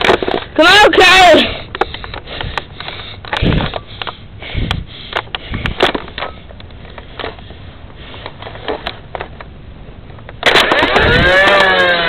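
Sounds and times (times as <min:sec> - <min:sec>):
camera handling clicks and rustles: 0:00.0 - 0:00.5, 0:05.1 - 0:07.5, 0:08.2 - 0:09.5.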